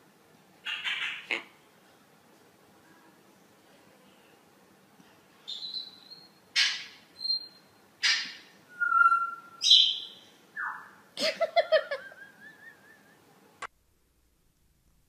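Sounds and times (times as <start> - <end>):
parrot chirping: 0.6 - 1.4, 5.5 - 11.0
parrot squawking: 0.6 - 1.6, 5.5 - 11.0
parrot whistling: 5.5 - 11.0.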